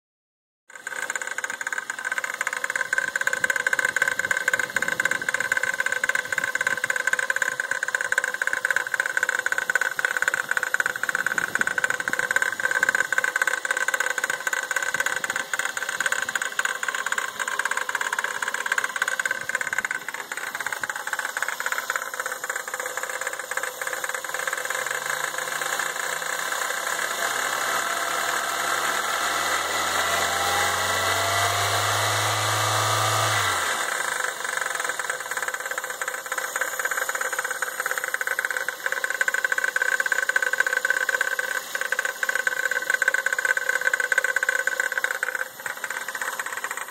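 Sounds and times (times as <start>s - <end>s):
car engine idling with knocking rattle: 0.7s - 46.9s.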